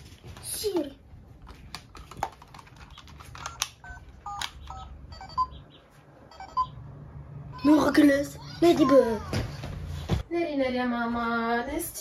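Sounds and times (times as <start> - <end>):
toy button clicks: 3.4 - 4.9.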